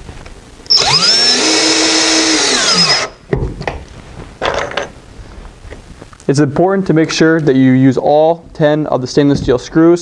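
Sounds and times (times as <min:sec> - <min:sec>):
cordless screw gun whining: 0:00.7 - 0:03.2.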